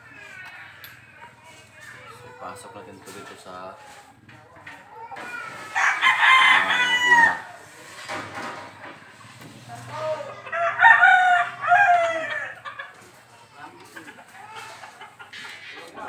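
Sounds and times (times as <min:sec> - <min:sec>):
rooster crowing: 0:05.7 - 0:07.6, 0:10.4 - 0:12.7.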